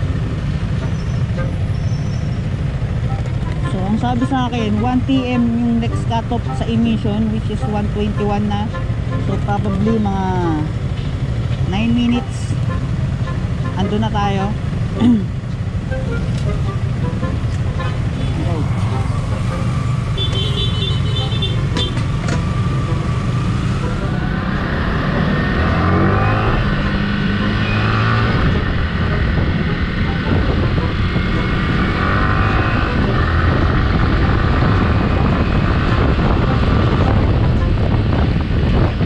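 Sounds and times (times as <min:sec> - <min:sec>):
motorcycle engine accelerating: 0:14.6 - 0:39.0
wind buffeting microphone: 0:28.2 - 0:39.0.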